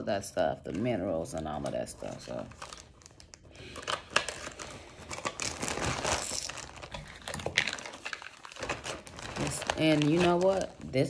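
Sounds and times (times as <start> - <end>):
plastic pouch crinkling: 1.9 - 11.0.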